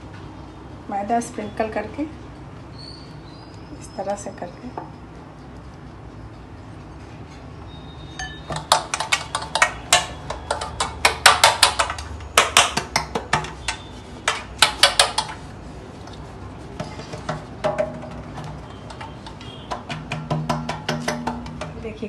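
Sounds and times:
metal cake tin being tapped: 16.8s - 22.0s.

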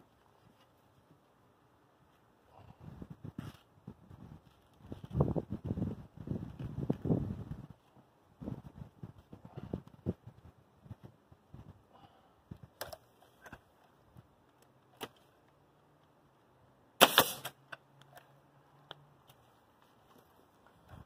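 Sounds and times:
nail gun firing: 17.0s - 17.6s.

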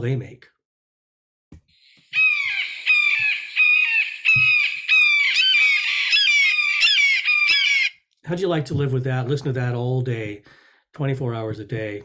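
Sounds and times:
hawk calling: 1.8s - 8.0s.

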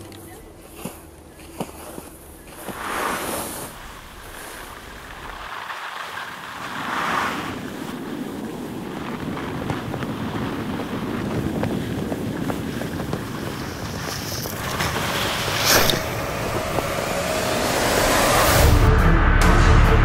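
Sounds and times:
wind-like rushing noise: 6.3s - 18.9s
low rumble: 12.4s - 20.0s.

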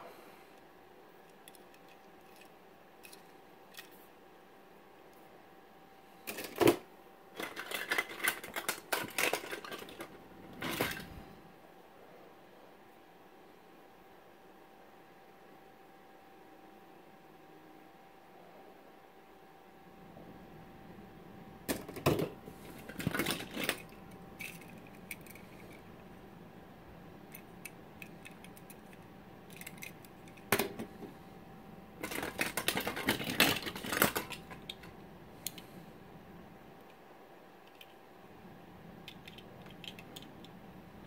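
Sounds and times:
plastic toys clicking and clattering: 1.2s - 4.0s, 6.3s - 6.8s, 7.4s - 11.1s, 21.7s - 25.9s, 27.3s - 30.9s, 32.0s - 35.6s, 37.6s - 38.0s, 39.0s - 40.6s.

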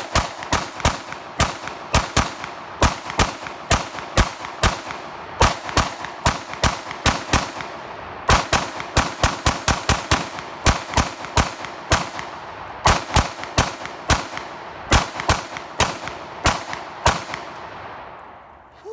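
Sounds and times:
rifle gunshots with echo: 0.0s - 18.4s.

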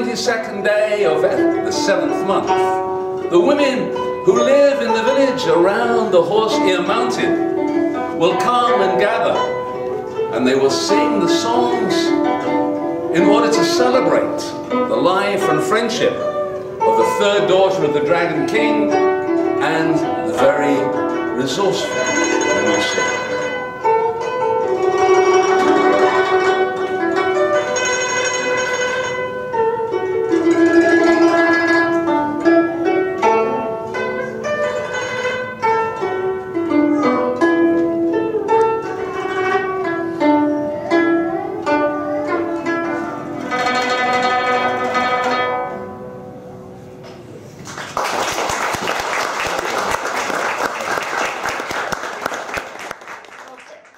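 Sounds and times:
plucked zither melody: 0.0s - 52.8s
applause: 47.6s - 53.9s.

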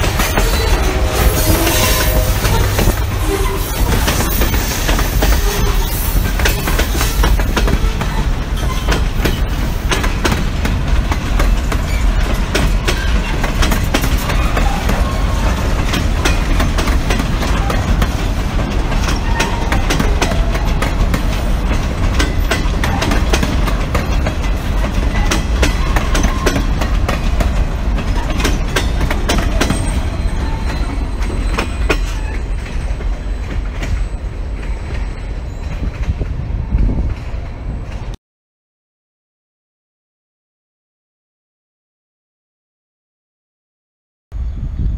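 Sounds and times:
freight train rumbling past: 0.0s - 38.2s
wheels clacking over rail joints: 0.0s - 38.2s.

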